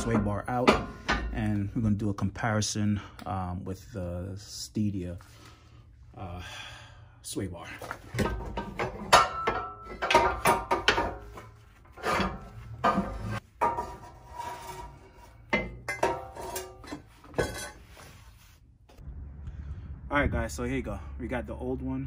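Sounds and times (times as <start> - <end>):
metal sway bar clanking and rattling: 0.0 - 1.7, 7.8 - 18.0.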